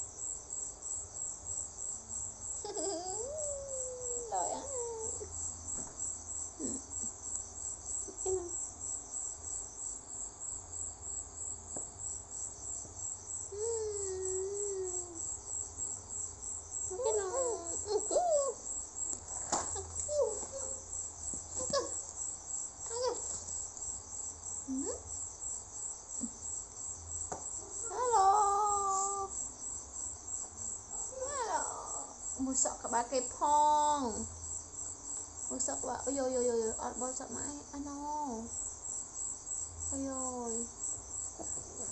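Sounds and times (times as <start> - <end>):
baby babbling and cooing: 16.9 - 18.6.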